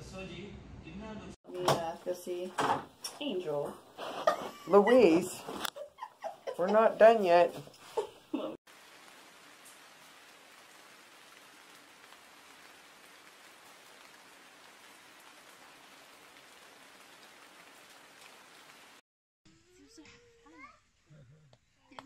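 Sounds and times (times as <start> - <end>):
faint steady hiss: 1.6 - 19.0.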